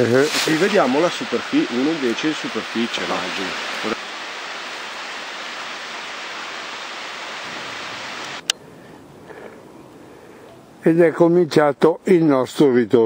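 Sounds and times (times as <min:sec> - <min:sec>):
mountain stream rushing: 0:00.0 - 0:08.5
faint hiss: 0:00.0 - 0:12.8.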